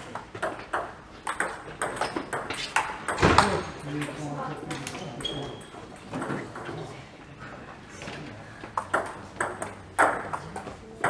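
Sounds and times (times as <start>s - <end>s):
table tennis balls clicking: 0.0s - 6.9s, 8.6s - 11.0s.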